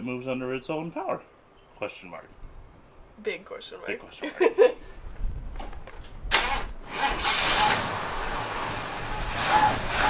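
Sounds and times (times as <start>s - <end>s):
truck engine starting and running: 6.3s - 10.0s.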